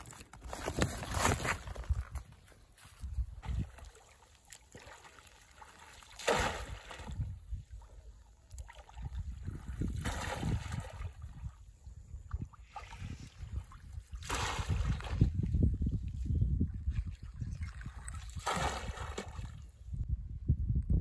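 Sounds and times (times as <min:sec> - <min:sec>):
water sloshing around wading person: 0:03.0 - 0:11.6.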